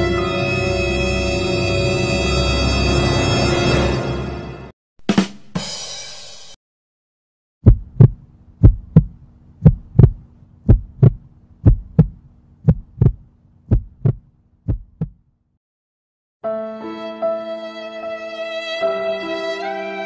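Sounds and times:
heartbeat thumps: 0:07.6 - 0:15.2.

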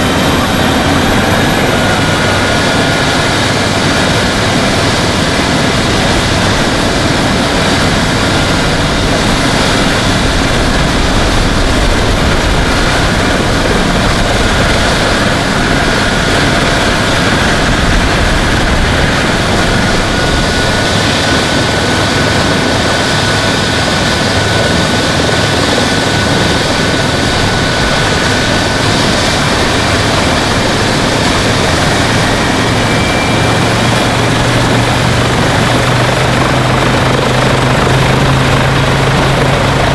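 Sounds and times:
helicopter turbine and rotor: 0:00.0 - 0:39.9.

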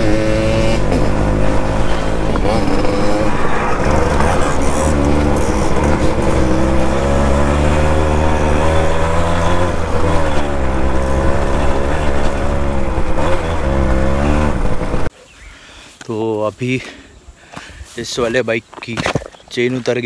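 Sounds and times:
motorcycle engine running: 0:00.0 - 0:15.1.

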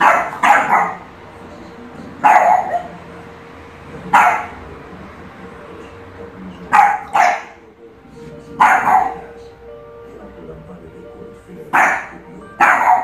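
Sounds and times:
dog barking: 0:00.0 - 0:01.1, 0:02.2 - 0:03.0, 0:04.1 - 0:04.6, 0:06.7 - 0:07.6, 0:08.6 - 0:09.3, 0:11.7 - 0:13.0.

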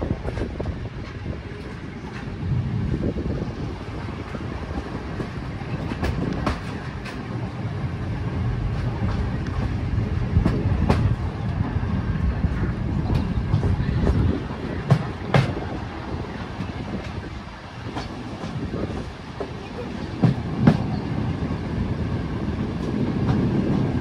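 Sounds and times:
train rumbling: 0:00.0 - 0:24.0
wheels clacking over rail joints: 0:04.1 - 0:07.6, 0:12.5 - 0:24.0.

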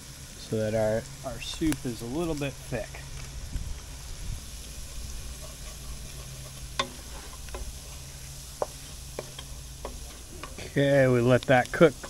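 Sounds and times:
low sizzle: 0:00.0 - 0:12.0
wooden spoon stirring in pot: 0:03.8 - 0:12.0.

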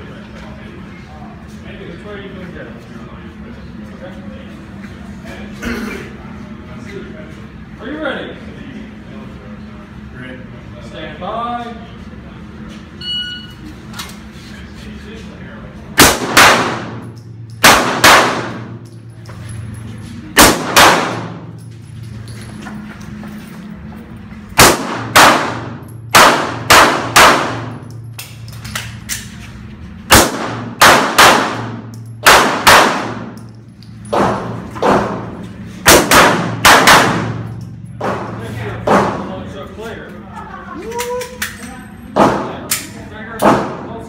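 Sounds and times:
pistol shots echoing indoors: 0:16.0 - 0:19.0, 0:20.3 - 0:21.6, 0:24.6 - 0:29.2, 0:30.1 - 0:33.5, 0:34.1 - 0:39.3.

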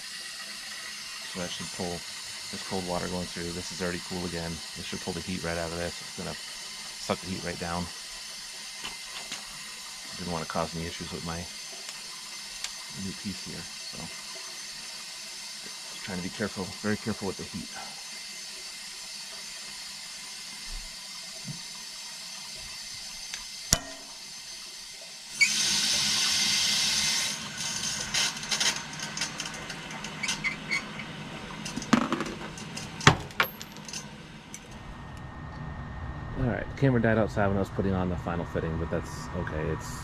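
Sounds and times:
loud hiss of steam: 0:00.0 - 0:08.1, 0:15.6 - 0:18.2, 0:25.4 - 0:27.8
clinks on copper pipe: 0:23.7 - 0:24.2.

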